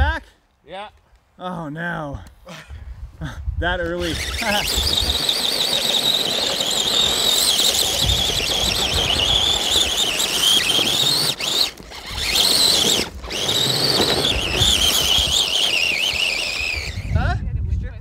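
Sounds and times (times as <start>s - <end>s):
electric motor whining: 4.0s - 17.2s.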